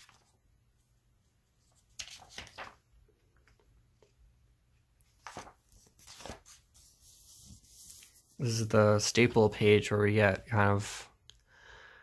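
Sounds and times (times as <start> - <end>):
pages flipping: 0.0 - 0.4, 1.6 - 4.1, 5.0 - 8.4.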